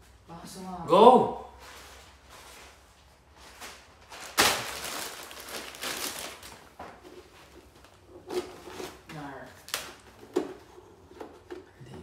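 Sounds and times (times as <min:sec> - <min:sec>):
plastic packaging crinkling: 0:03.6 - 0:06.8.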